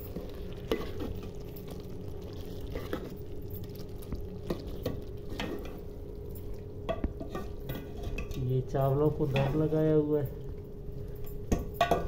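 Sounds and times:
curry simmering: 0:00.0 - 0:12.0
ladle clinking on pot: 0:11.5 - 0:12.0.

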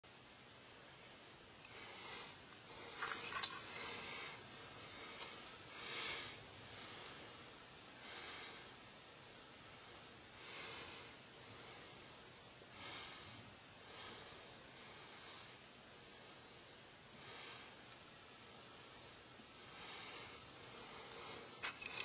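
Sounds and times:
person breathing softly: 0:00.7 - 0:22.0.

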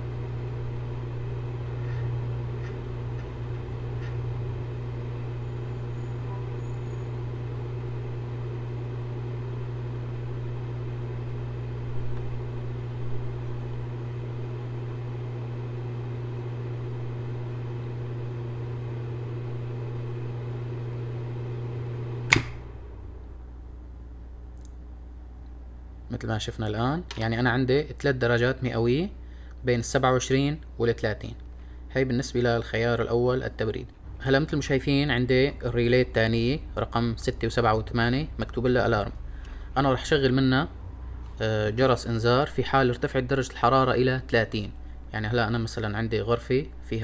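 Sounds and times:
cooling fan humming: 0:00.0 - 0:47.0
contactor click: 0:22.2 - 0:22.7.

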